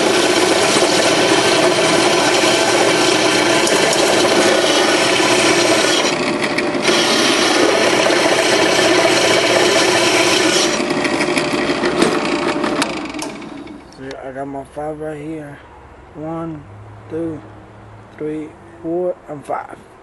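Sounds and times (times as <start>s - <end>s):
drill bit grinding into metal: 0.0s - 14.0s
drill motor running: 0.0s - 14.0s.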